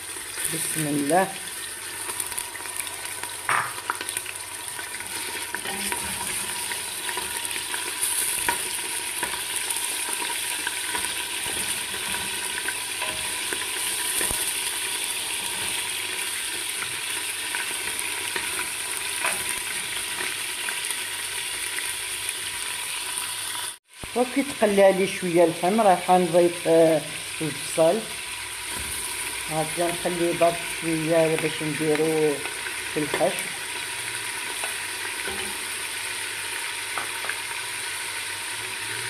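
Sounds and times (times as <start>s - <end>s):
meat sizzling in oil: 0.0s - 39.0s
wooden spoon scraping a pot: 4.9s - 7.2s.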